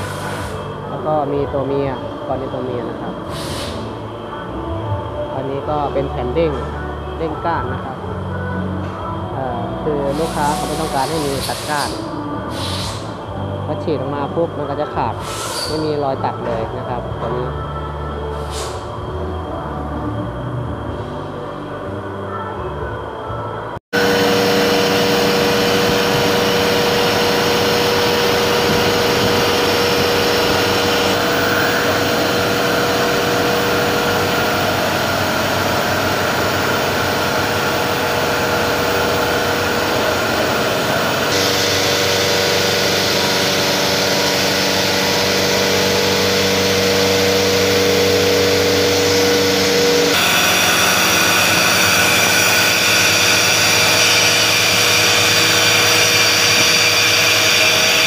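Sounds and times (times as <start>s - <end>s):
milling machine cutting metal: 24.0s - 58.0s.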